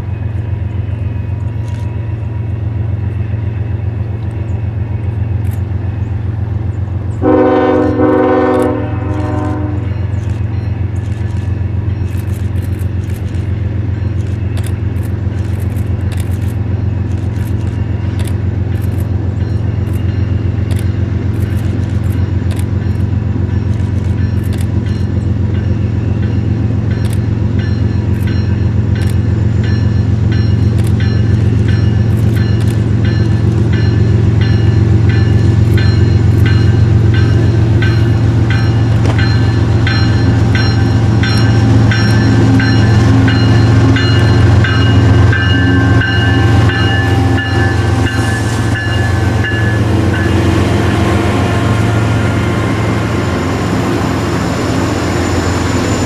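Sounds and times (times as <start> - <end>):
train engine rumble: 0.0 - 56.0
high ringing from wheels: 17.8 - 56.0.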